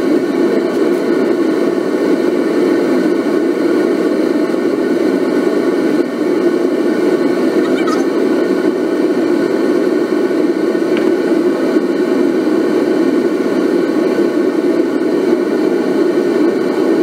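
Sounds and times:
propane burner rushing: 0.0s - 17.0s.

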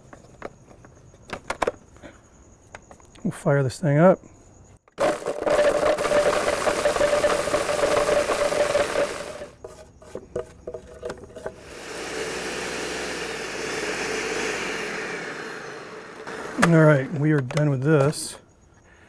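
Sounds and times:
countertop blender running: 5.0s - 9.6s, 11.4s - 17.0s.

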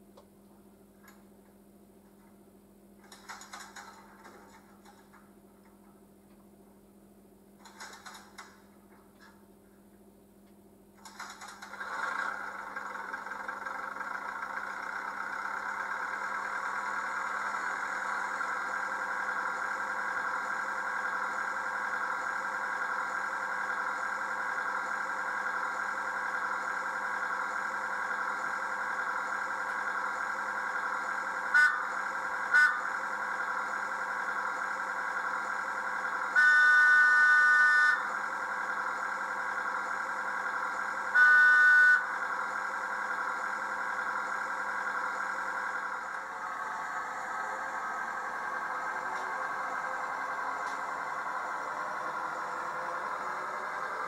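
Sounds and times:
model train engine idling: 3.0s - 6.0s, 7.6s - 9.9s, 10.9s - 54.0s
model train horn chord: 31.5s - 33.0s, 36.3s - 38.2s, 41.1s - 42.3s.

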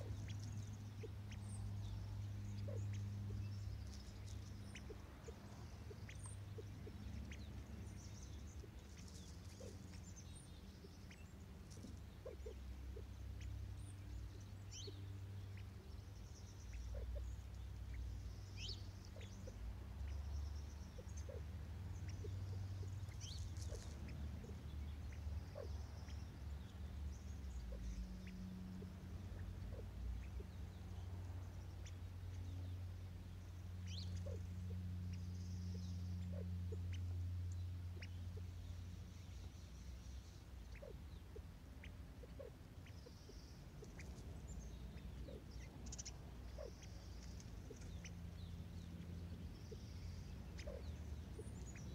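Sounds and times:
bird pecking seed on ground: 0.0s - 12.8s, 22.1s - 25.2s
faint high bird chirps: 0.0s - 51.9s
steady low rumble: 0.0s - 51.9s.

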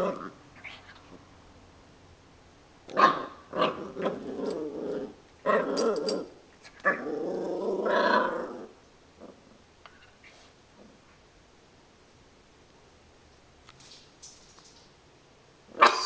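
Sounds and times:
puppy growling: 0.0s - 1.2s, 2.9s - 9.6s.

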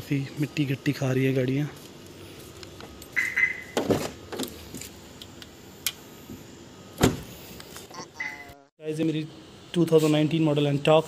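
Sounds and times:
car door thumps: 7.0s - 7.3s.

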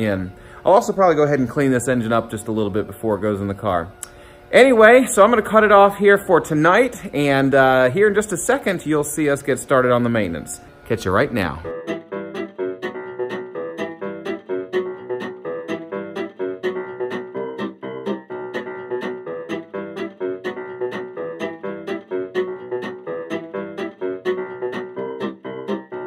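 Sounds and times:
music with plucked guitar: 9.8s - 26.0s.

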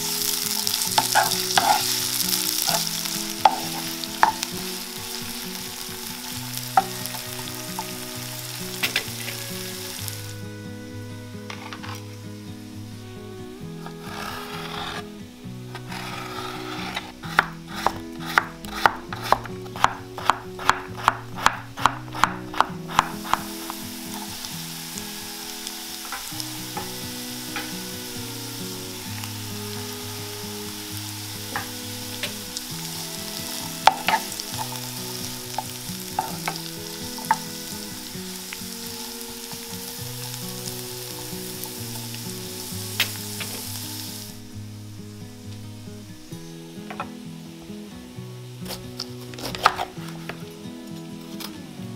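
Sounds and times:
vegetables sizzling in oil: 0.0s - 51.9s
utensil tapping and scraping: 2.6s - 4.8s, 15.8s - 24.4s, 33.7s - 37.5s.

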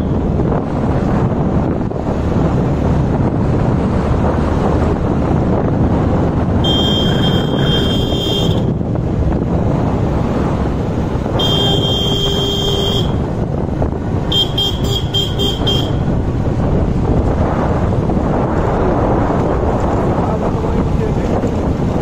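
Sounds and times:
motorcycle rumble: 0.0s - 22.0s
wind buffeting microphone: 0.0s - 22.0s
motorcycle horn: 6.6s - 8.8s, 11.3s - 13.3s, 14.2s - 16.1s.

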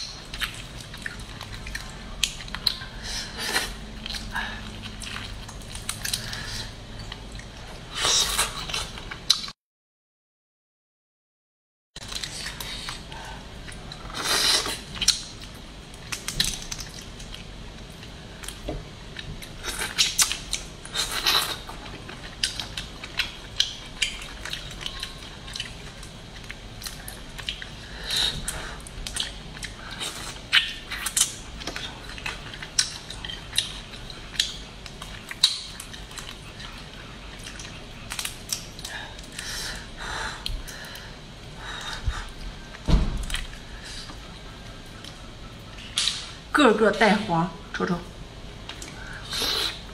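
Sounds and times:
crawfish shells cracking: 37.4s - 39.8s.

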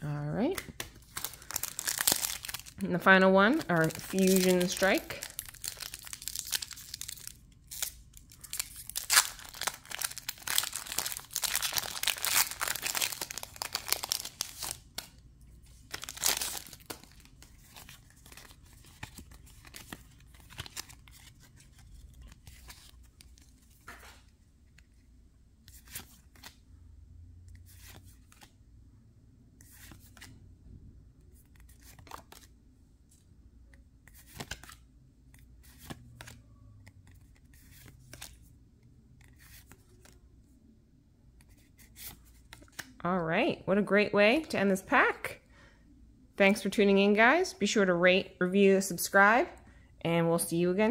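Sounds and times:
cards rustling and clicking: 0.5s - 2.8s, 3.6s - 26.6s, 27.6s - 28.6s, 29.6s - 30.4s, 31.3s - 32.5s, 33.1s - 38.5s, 39.2s - 40.2s, 41.4s - 43.0s
foil wrapper tearing and crinkling: 1.2s - 2.8s, 3.9s - 14.8s, 15.9s - 17.2s.

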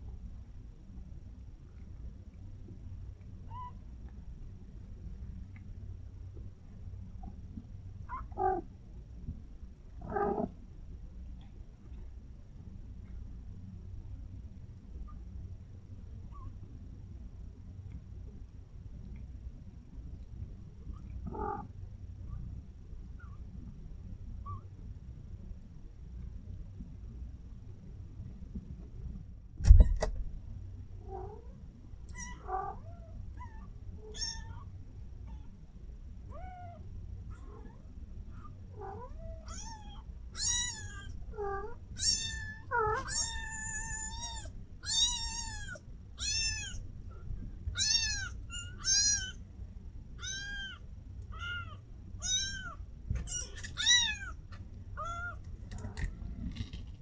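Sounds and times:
kitten mewing: 21.3s - 21.7s
thump: 29.6s - 30.2s.

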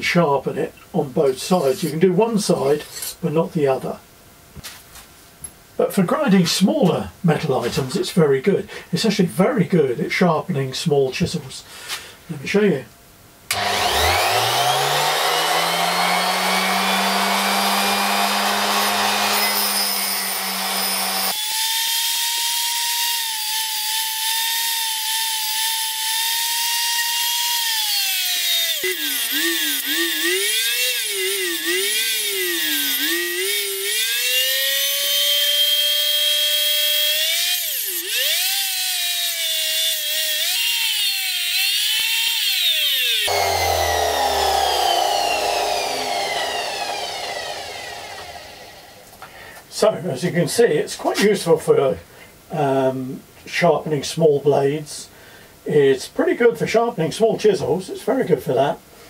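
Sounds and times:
bench grinder motor whine: 13.5s - 49.2s.

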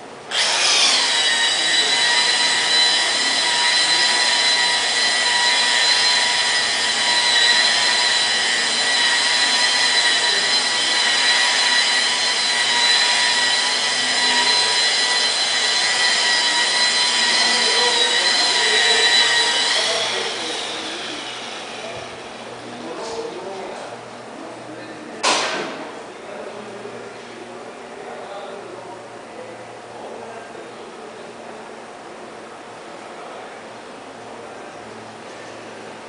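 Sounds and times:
power sander high whine: 0.3s - 22.8s.

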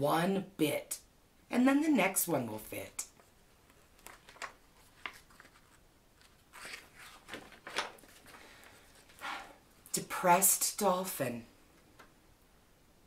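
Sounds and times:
book pages rustling: 3.2s - 9.2s.

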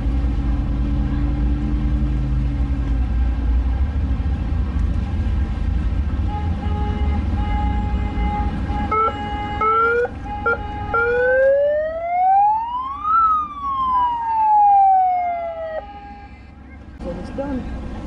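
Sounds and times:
steady horn tone: 6.2s - 11.4s, 15.5s - 16.6s
siren wailing: 7.4s - 16.5s.

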